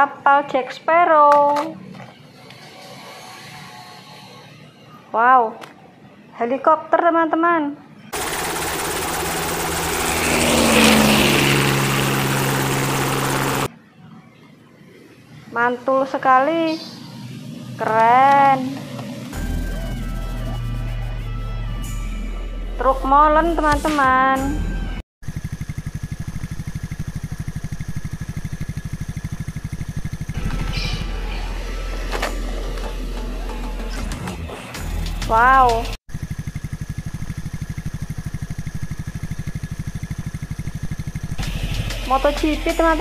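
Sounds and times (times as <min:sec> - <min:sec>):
helicopter rotor and turbine noise: 0:08.1 - 0:13.7, 0:25.2 - 0:33.8, 0:36.0 - 0:43.0
diesel engine pulsing: 0:08.2 - 0:13.7, 0:19.3 - 0:21.9, 0:25.2 - 0:43.0
low engine hum: 0:08.2 - 0:13.7.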